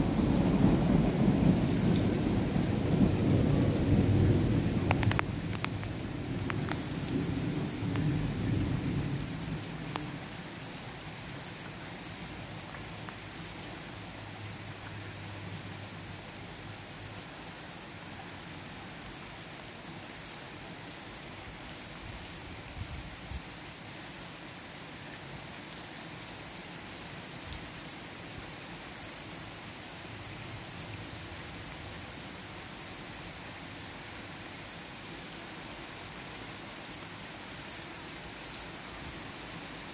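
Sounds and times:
thunder rumble: 0:00.0 - 0:10.1
steady rain falling: 0:00.0 - 0:39.9
raindrops ticking close by: 0:00.1 - 0:17.3.

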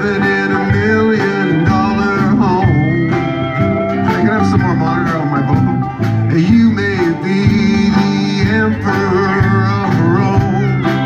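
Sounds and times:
country band playing: 0:00.0 - 0:11.0
drums: 0:00.0 - 0:11.0
pedal steel guitar sliding notes: 0:00.0 - 0:11.0.

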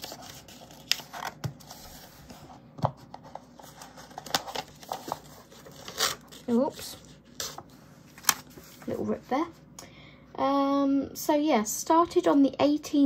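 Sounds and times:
paper crackling and scraping: 0:00.0 - 0:09.4.

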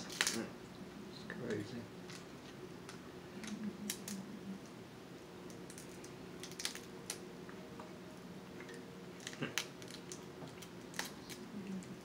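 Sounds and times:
crab shells cracking: 0:00.0 - 0:00.5, 0:02.8 - 0:04.2, 0:05.4 - 0:07.3, 0:09.1 - 0:11.9.

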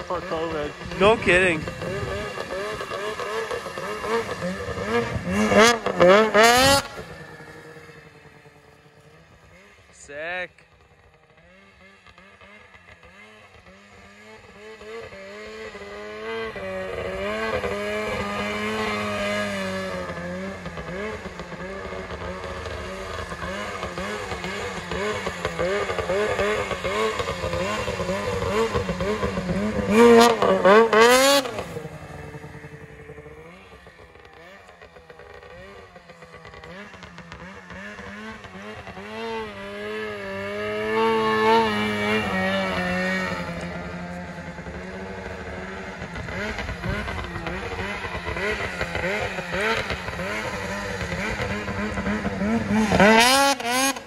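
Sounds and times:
snowmobile engine revving: 0:00.0 - 0:54.0.

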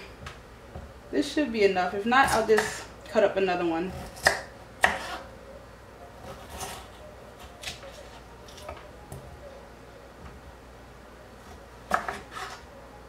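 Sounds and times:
knife cutting on cutting board: 0:04.0 - 0:05.3, 0:11.9 - 0:12.6.

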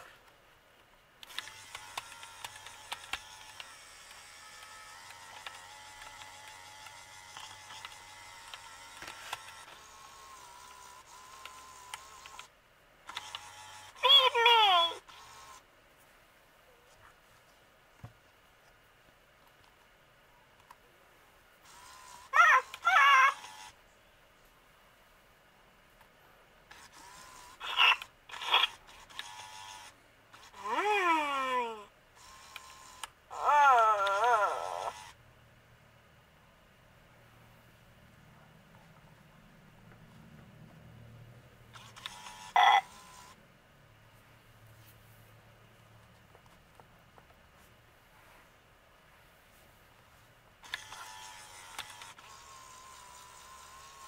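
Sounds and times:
small electric motor whirring: 0:01.2 - 0:12.5, 0:13.1 - 0:15.6, 0:21.6 - 0:23.8, 0:26.7 - 0:35.2, 0:41.7 - 0:43.4, 0:50.6 - 0:54.0
toy electronic creature calls: 0:14.0 - 0:15.0, 0:22.1 - 0:23.7, 0:27.6 - 0:28.8, 0:30.5 - 0:31.9, 0:33.3 - 0:35.1, 0:42.1 - 0:43.1.

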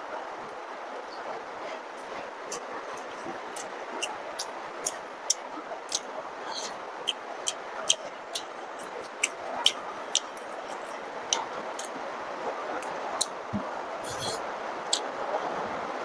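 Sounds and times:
heavy rain hissing: 0:00.0 - 0:16.0
wet mouth clicks while chewing: 0:03.6 - 0:11.9.

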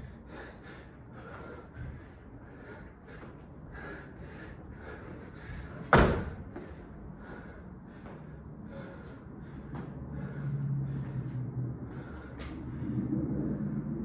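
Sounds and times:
person panting hard: 0:00.0 - 0:14.0
loud heavy thud: 0:05.9 - 0:06.4.

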